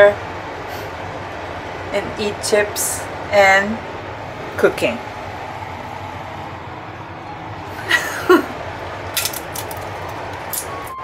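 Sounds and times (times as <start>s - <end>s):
potato chips crunching: 9.1s - 11.0s.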